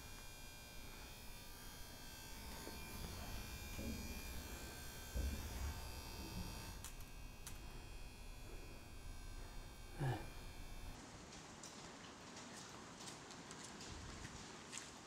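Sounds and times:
faint electrical buzz: 0:00.0 - 0:12.0.

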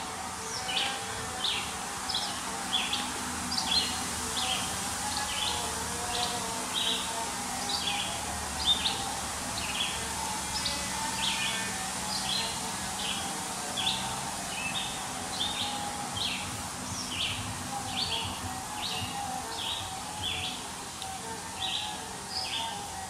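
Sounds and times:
bird chirping: 0:13.8 - 0:20.6.

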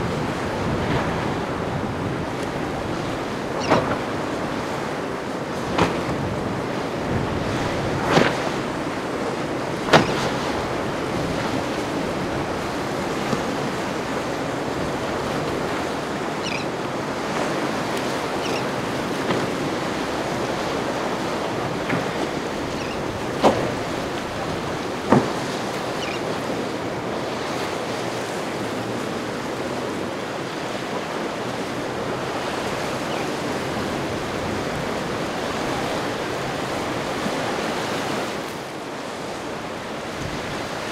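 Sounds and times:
ocean waves: 0:00.0 - 0:40.9
wind: 0:00.0 - 0:40.9.

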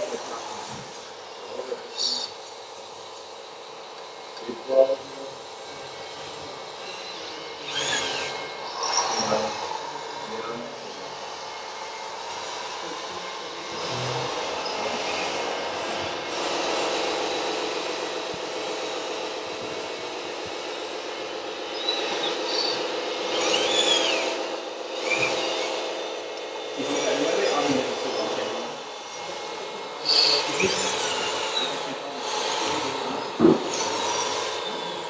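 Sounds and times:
small electric motors whirring: 0:00.0 - 0:35.0
high squeal: 0:06.8 - 0:10.4, 0:21.7 - 0:24.4, 0:30.0 - 0:35.0.

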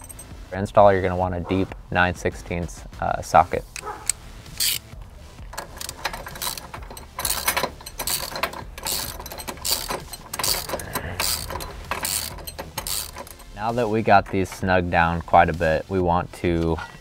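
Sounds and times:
ratchet wrench clicking: 0:03.7 - 0:04.9, 0:05.5 - 0:14.6.

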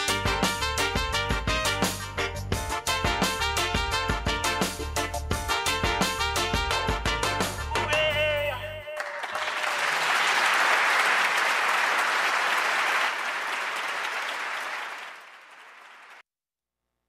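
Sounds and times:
band music: 0:00.0 - 0:09.0
applause: 0:08.8 - 0:16.2.

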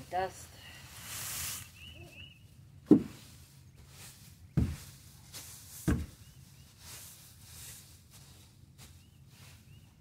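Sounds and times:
rake dragging straw: 0:00.9 - 0:01.9, 0:03.1 - 0:09.8
rake knocking on boards: 0:02.9 - 0:03.2.

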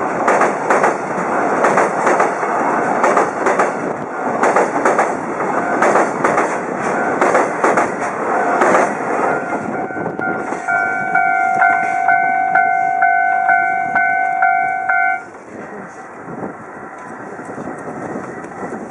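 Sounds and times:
train wagons clattering over bridge: 0:00.0 - 0:18.9
pulsing electronic ringing: 0:09.2 - 0:15.3.

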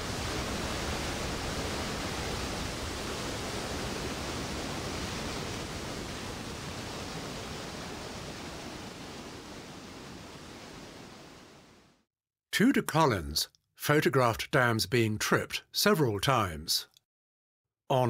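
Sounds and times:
floodwater rushing over logs: 0:00.0 - 0:11.5.

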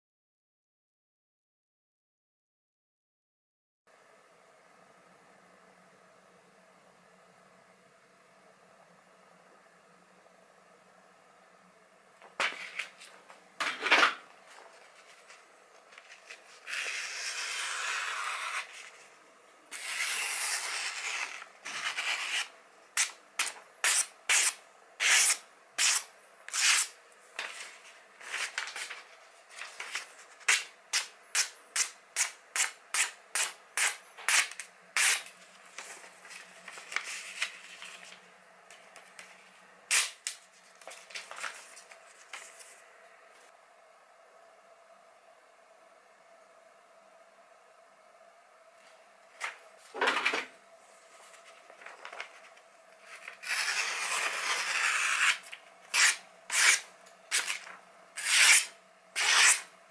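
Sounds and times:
knife slicing paper: 0:16.2 - 0:18.9, 0:19.7 - 0:29.0, 0:29.6 - 0:35.4, 0:53.1 - 0:59.7.

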